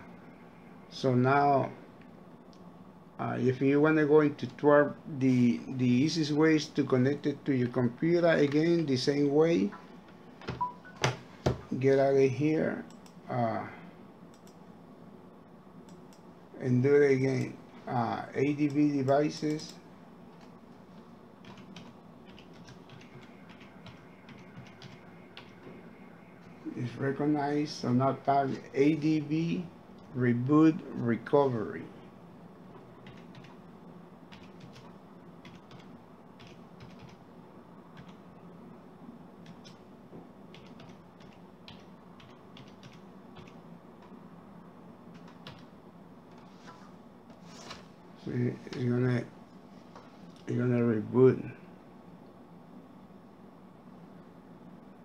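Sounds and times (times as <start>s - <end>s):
laptop keys tapping: 34.3s - 37.2s, 40.5s - 44.2s.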